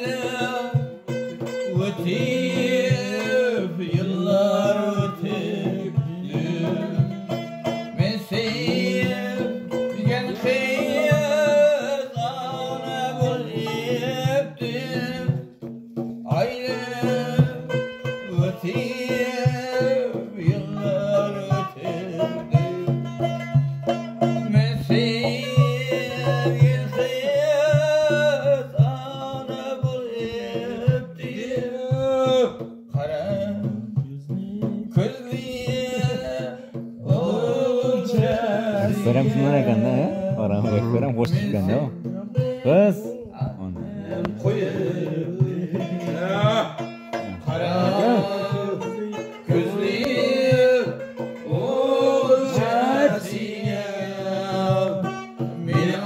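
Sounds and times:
frame drum rhythm: 0:00.0 - 0:56.0
man singing folk song: 0:00.0 - 0:56.0
plucked lute: 0:00.0 - 0:56.0.

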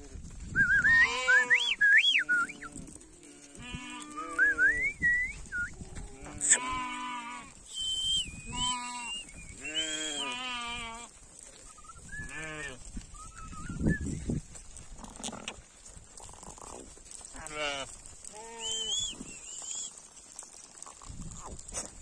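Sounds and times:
sheep bleating: 0:01.0 - 0:04.8, 0:05.9 - 0:07.6, 0:08.5 - 0:11.1, 0:12.2 - 0:12.9, 0:17.3 - 0:19.0
high wavering whistled tone: 0:07.7 - 0:10.2, 0:18.6 - 0:19.9.

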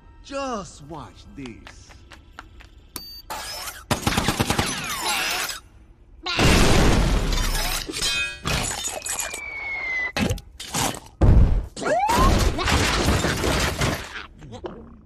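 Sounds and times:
glass shattering: 0:06.4 - 0:09.4
falling whistle: 0:09.1 - 0:10.2.

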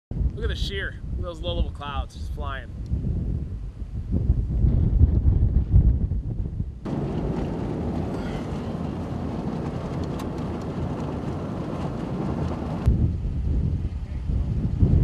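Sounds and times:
wind buffeting microphone: 0:00.1 - 0:15.0
vehicle road noise: 0:06.9 - 0:14.6.

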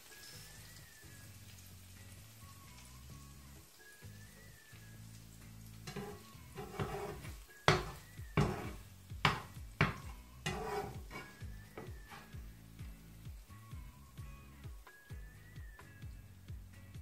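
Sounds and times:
light sizzle: 0:00.0 - 0:17.0
fork scraping frying pan: 0:05.8 - 0:12.4.

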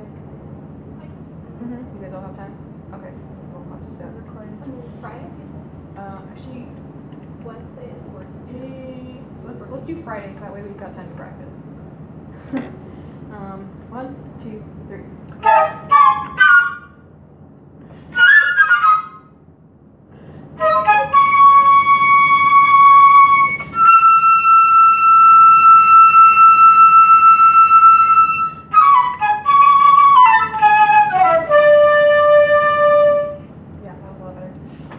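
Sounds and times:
flutes playing slow melody: 0:15.4 - 0:17.0, 0:18.1 - 0:19.3, 0:20.6 - 0:33.5.

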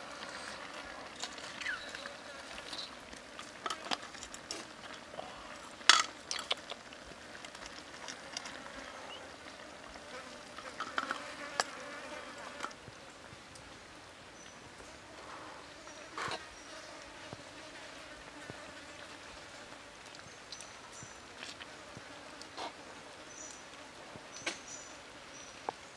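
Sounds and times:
faint insect buzzing: 0:07.0 - 0:13.3, 0:14.4 - 0:25.9.

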